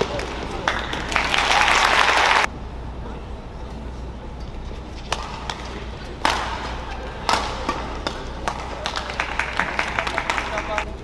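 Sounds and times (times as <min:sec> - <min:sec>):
racket hitting shuttlecock: 0:05.0 - 0:10.3.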